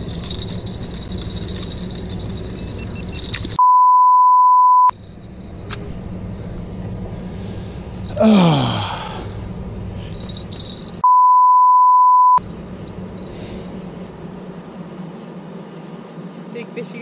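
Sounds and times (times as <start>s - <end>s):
censor bleep: 3.6s - 4.9s, 11.0s - 12.4s
steady hiss with high hum: 12.4s - 17.0s.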